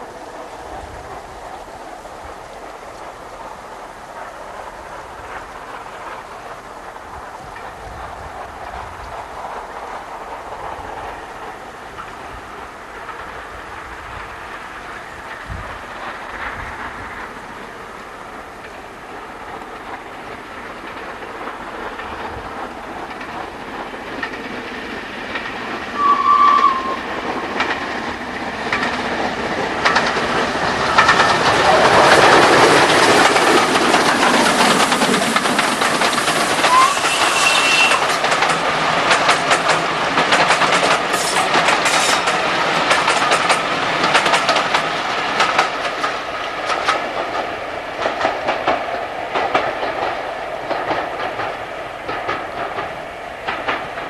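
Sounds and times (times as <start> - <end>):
steam locomotive passing: 0.0 - 54.0
carriages clattering over rail joints: 19.6 - 54.0
steam whistle blast: 26.0 - 27.1, 36.6 - 38.1.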